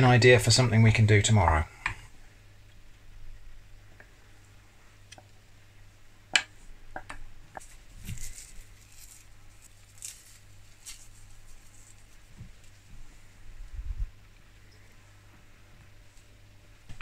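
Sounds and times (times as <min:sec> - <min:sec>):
soft scratchy rustles: 0:07.6 - 0:16.4.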